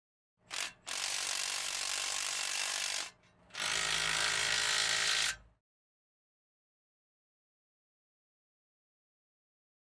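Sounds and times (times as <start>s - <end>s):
power tool whirring: 0.5s - 5.5s.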